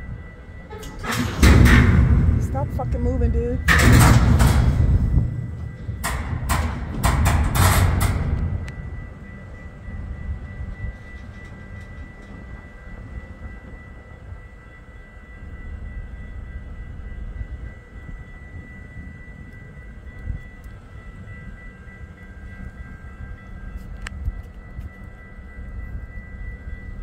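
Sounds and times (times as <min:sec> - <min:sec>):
train rumble: 0:00.0 - 0:27.0
metallic bangs and scraping crashes: 0:00.7 - 0:08.7.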